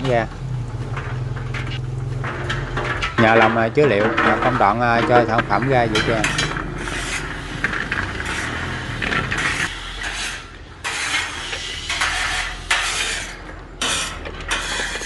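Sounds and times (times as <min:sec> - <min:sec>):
peanuts clattering over steel: 0:00.0 - 0:09.4.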